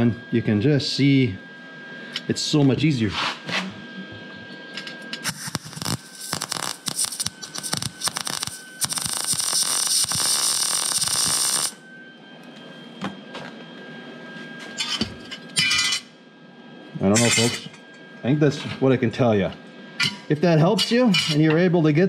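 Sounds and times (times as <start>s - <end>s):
welder arc crackling: 5.1s - 11.8s.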